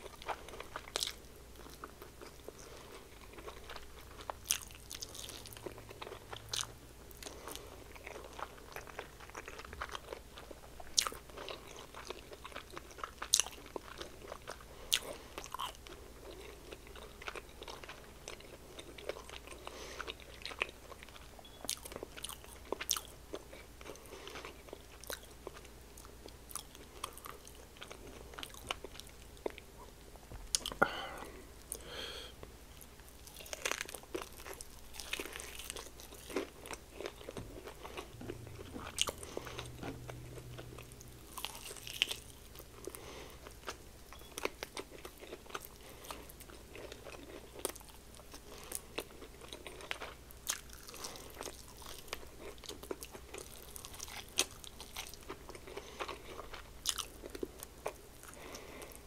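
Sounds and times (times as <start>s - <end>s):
person chewing crunchy food: 0.0s - 59.0s.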